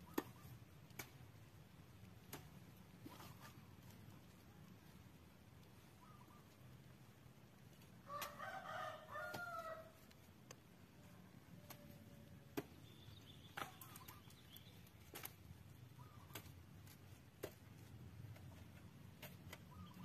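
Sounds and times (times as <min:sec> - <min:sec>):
rooster crowing: 0:08.1 - 0:10.0.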